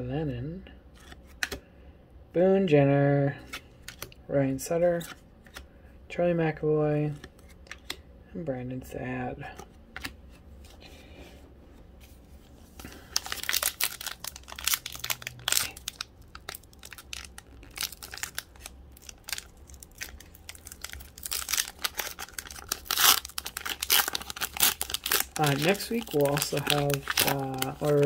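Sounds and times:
foil wrapper tearing and crinkling: 0:12.8 - 0:28.0.

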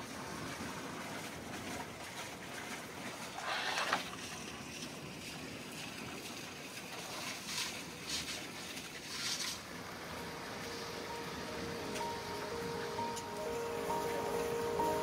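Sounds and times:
outdoor background noise: 0:00.0 - 0:15.0
rustling or scraping: 0:03.3 - 0:04.2, 0:07.2 - 0:09.8
soft background music: 0:09.8 - 0:15.0.

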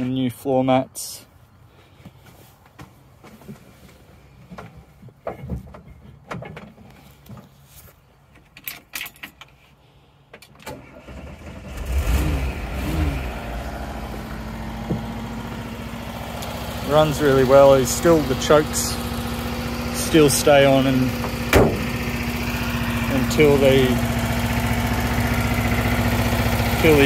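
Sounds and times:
engine starting and idling: 0:10.6 - 0:27.0.

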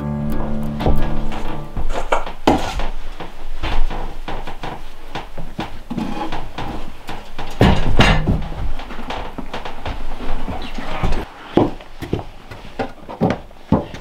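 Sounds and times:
boots knocking on wooden sill: 0:00.8 - 0:14.0.

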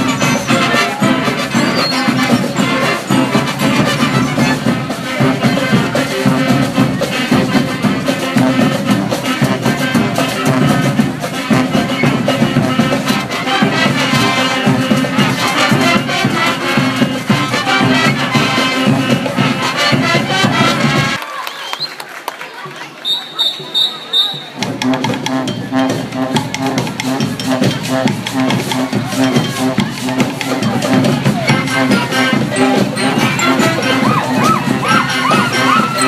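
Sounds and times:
marching band playing: 0:00.0 - 0:21.2, 0:23.0 - 0:36.0
percussion beat: 0:00.0 - 0:21.2, 0:23.2 - 0:36.0.

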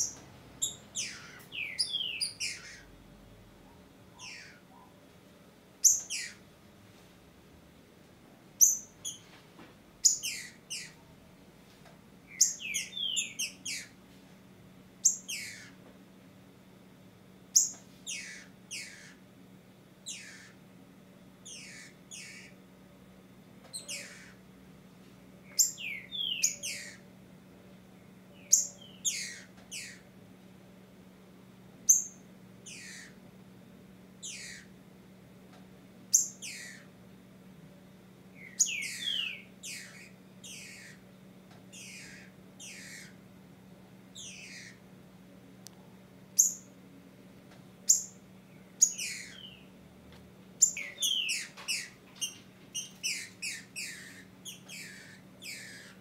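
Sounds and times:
bird giving sharp downward calls: 0:00.0 - 0:02.9, 0:04.2 - 0:04.7, 0:05.8 - 0:06.4, 0:10.0 - 0:11.0, 0:12.3 - 0:14.0, 0:15.0 - 0:15.8, 0:17.6 - 0:19.2, 0:20.1 - 0:20.6, 0:21.5 - 0:22.5, 0:23.8 - 0:24.4, 0:25.5 - 0:27.0, 0:28.5 - 0:30.0, 0:32.7 - 0:33.2, 0:34.2 - 0:34.7, 0:36.1 - 0:36.9, 0:38.4 - 0:41.0, 0:41.7 - 0:43.2, 0:44.2 - 0:44.8, 0:48.8 - 0:49.6, 0:50.6 - 0:56.0.

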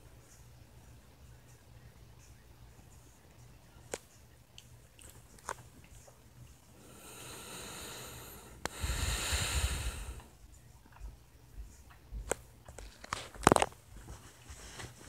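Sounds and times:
person breathing deeply: 0:06.8 - 0:10.3.

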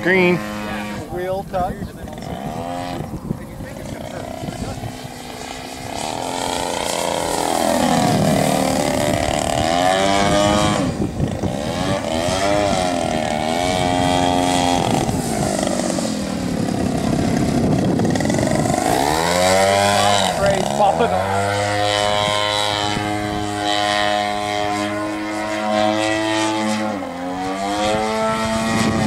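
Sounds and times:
propeller airplane engine: 0:00.0 - 0:29.0.

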